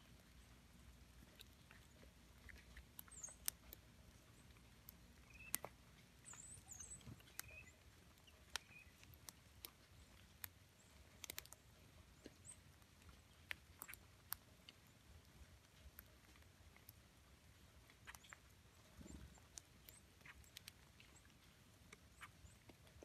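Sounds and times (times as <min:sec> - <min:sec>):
songbird chip calls: 0:03.0 - 0:04.4, 0:05.2 - 0:09.1, 0:22.0 - 0:22.7.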